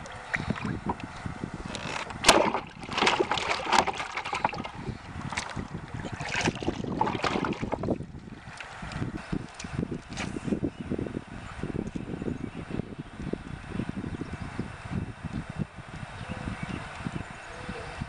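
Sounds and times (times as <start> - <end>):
paddle splashing in water: 1.8 - 8.8.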